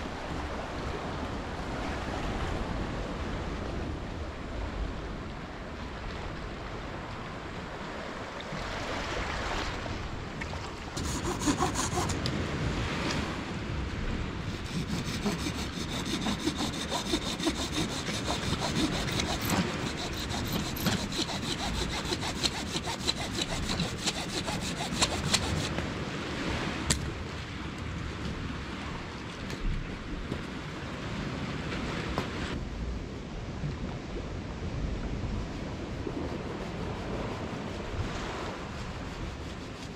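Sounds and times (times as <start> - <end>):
wood being hand-sawn: 11.0 - 12.3, 14.4 - 25.8, 39.1 - 39.9.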